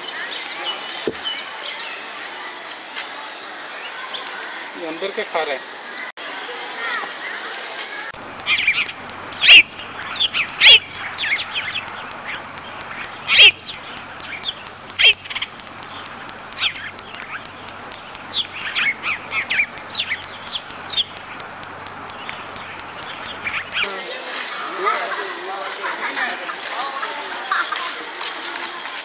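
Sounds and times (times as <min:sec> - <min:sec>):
high chirping animal calls: 0:08.2 - 0:23.9.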